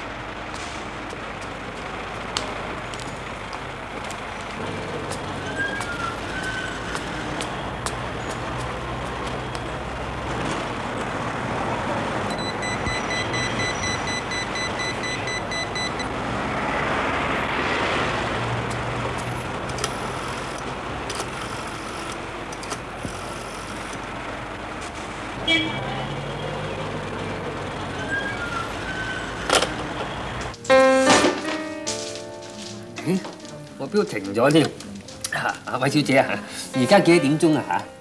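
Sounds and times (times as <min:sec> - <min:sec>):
traffic rumble: 0:00.0 - 0:36.8
cars passing: 0:00.0 - 0:37.2
rapid electronic beeps: 0:12.3 - 0:16.1.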